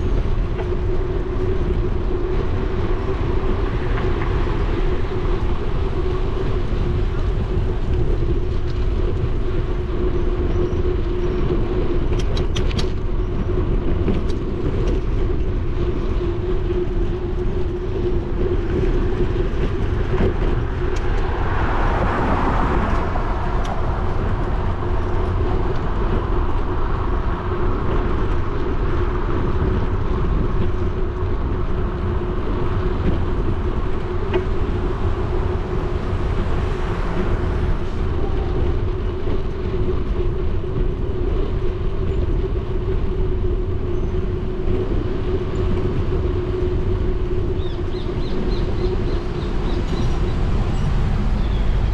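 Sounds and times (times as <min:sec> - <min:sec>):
steady hum from bike: 0:00.0 - 0:51.9
wind rumbling on microphone: 0:00.0 - 0:51.9
car passing: 0:18.7 - 0:27.5, 0:32.6 - 0:39.8, 0:47.2 - 0:51.9.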